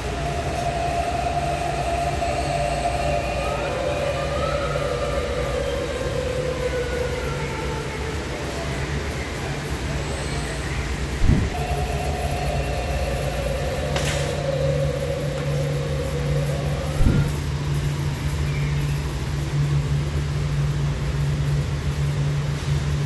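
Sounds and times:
blower fans humming: 0.0s - 23.0s
faint held tone: 11.2s - 18.0s.

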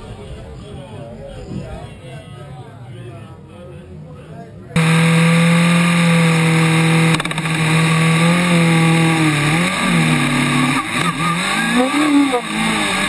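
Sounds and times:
race car engine accelerating: 4.8s - 13.0s.

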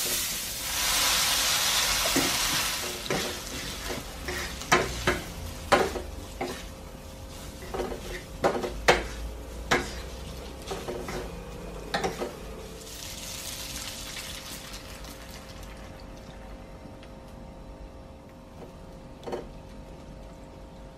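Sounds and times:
milk hissing in pan: 0.0s - 4.6s
low sizzle: 0.0s - 20.9s.

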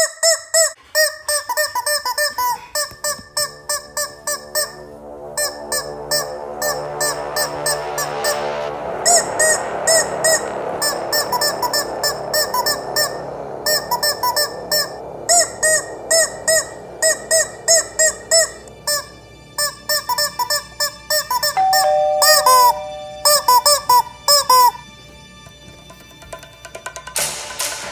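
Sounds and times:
rubber chicken toys squawking: 0.0s - 4.7s.

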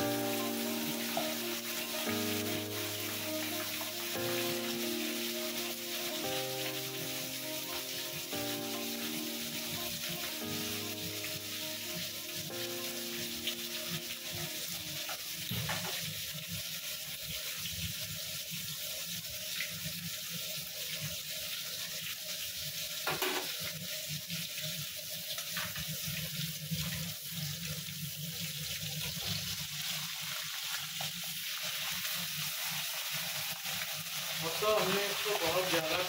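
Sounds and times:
chicken sizzling in a pan: 0.0s - 36.0s.

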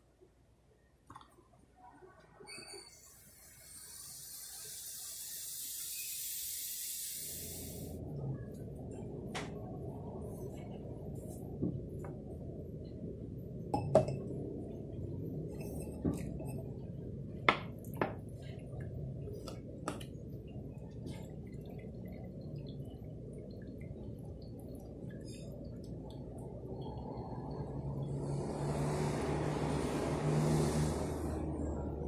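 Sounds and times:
steady low rumble: 7.8s - 29.9s.

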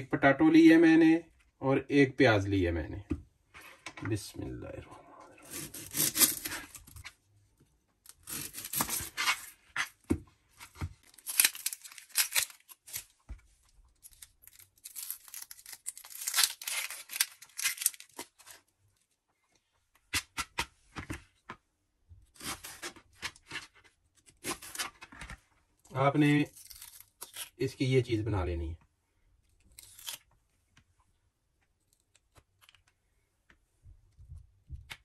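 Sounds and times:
onion skin tearing: 5.4s - 7.0s, 8.1s - 9.9s, 11.0s - 13.1s, 14.0s - 18.6s, 22.4s - 23.0s, 24.2s - 24.9s, 26.4s - 27.6s, 29.6s - 30.3s.

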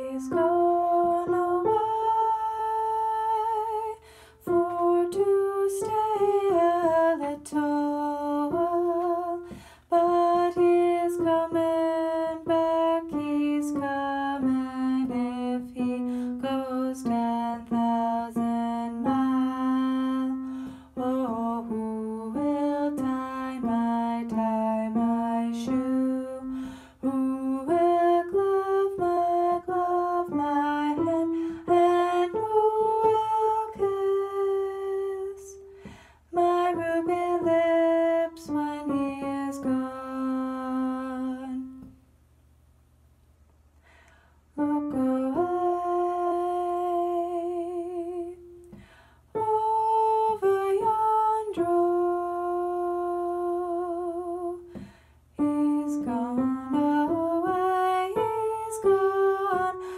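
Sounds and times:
person singing folk song: 0.0s - 41.9s
singer breathing: 4.0s - 4.4s, 9.4s - 9.9s, 26.5s - 27.0s, 35.6s - 36.3s, 43.8s - 44.5s, 48.7s - 49.3s, 54.7s - 55.3s.

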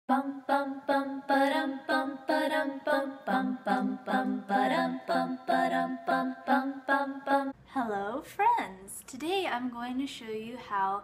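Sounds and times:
a cappella voices singing: 0.1s - 7.6s.

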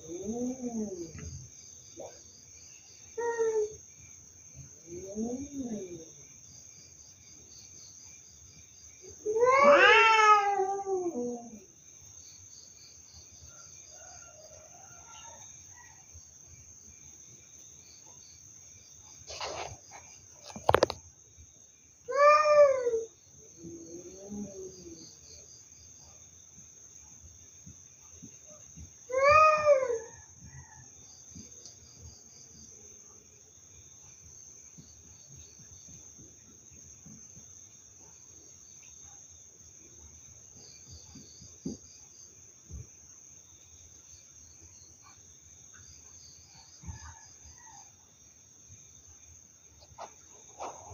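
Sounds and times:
crickets chirping: 0.0s - 50.9s
cats yowling: 9.2s - 11.7s, 22.1s - 25.0s, 29.1s - 30.2s.

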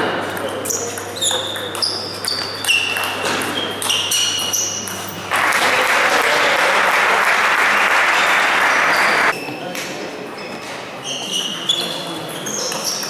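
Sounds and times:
ping-pong ball clicking: 0.4s - 5.0s
spectators applauding: 5.3s - 9.3s.

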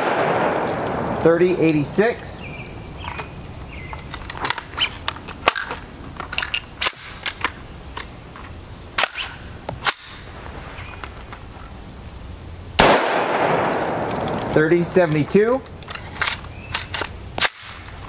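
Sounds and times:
rifle shot with echo: 0.0s - 1.6s, 12.8s - 14.9s
metallic clicks of rifle handling: 3.9s - 10.2s, 14.0s - 18.0s.

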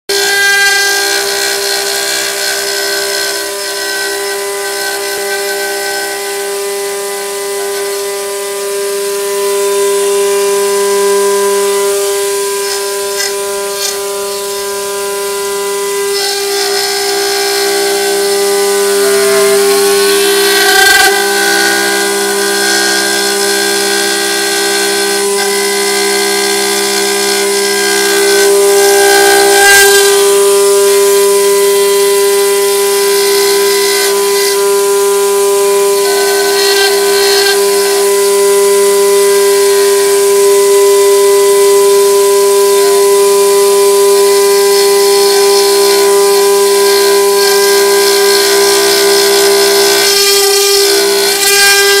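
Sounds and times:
spindle whine: 4.0s - 52.0s
bit cutting stone hiss: 9.6s - 41.8s.

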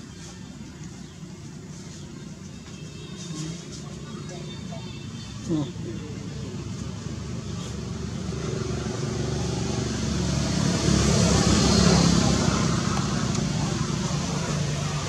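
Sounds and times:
vehicle engine passing by: 5.4s - 15.0s.

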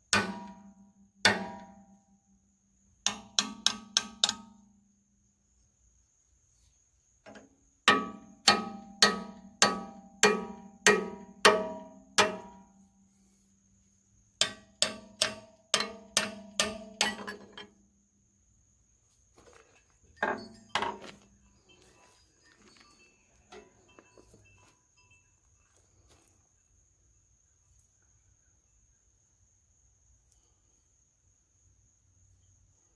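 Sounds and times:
hammer blows on steel: 7.9s - 12.8s, 14.4s - 17.6s.

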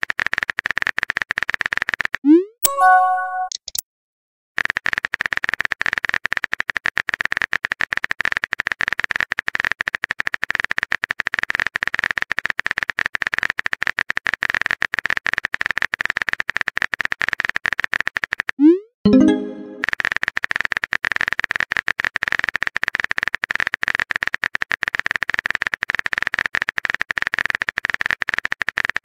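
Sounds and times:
electronic keyboard typing clicks: 2.3s - 3.8s
brief chime: 2.6s - 3.5s.

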